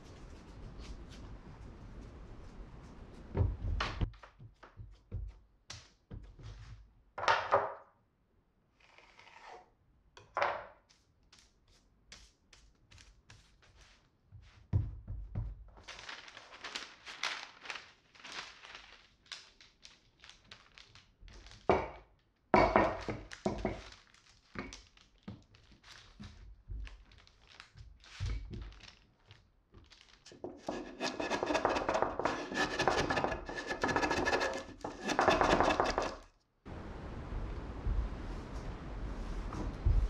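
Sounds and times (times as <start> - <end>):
baking paper rustling: 15.8 - 21.7, 23.0 - 36.0
rolling pin rolling over paper: 30.3 - 36.2
knocks and thumps on table: 30.4 - 36.2.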